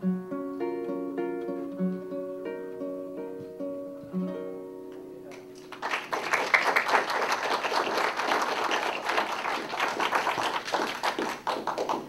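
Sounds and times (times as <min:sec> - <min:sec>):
acoustic guitar notes: 0:00.0 - 0:05.8
audience applause: 0:05.6 - 0:12.0.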